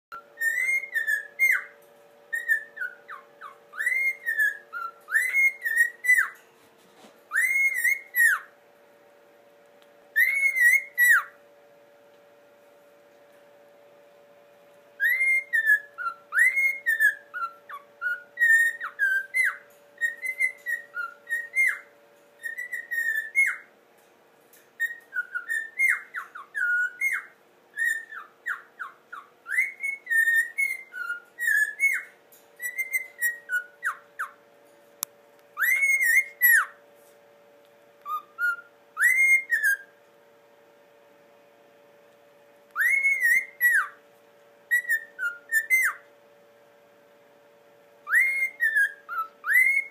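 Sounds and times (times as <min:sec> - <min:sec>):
cockatiel whistling a tune: 0:00.1 - 0:06.4, 0:07.3 - 0:08.5, 0:10.1 - 0:11.4, 0:15.0 - 0:23.7, 0:24.8 - 0:34.4, 0:35.6 - 0:36.8, 0:38.0 - 0:40.0, 0:42.7 - 0:44.0, 0:44.7 - 0:46.1, 0:48.0 - 0:49.9.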